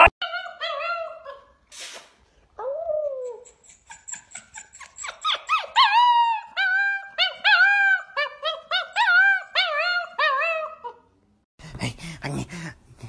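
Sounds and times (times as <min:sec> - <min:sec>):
dog whining: 0:02.6 - 0:11.0.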